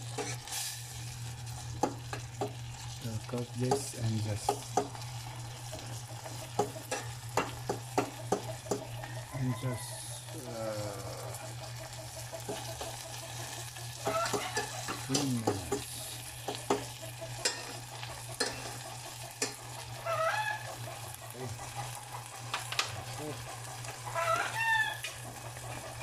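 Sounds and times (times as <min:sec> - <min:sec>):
food sizzling in a saucepan: 0:00.0 - 0:26.0
fork clicking against a pan: 0:06.5 - 0:08.9, 0:14.0 - 0:15.9, 0:16.5 - 0:17.8, 0:18.4 - 0:18.8, 0:19.4 - 0:19.6.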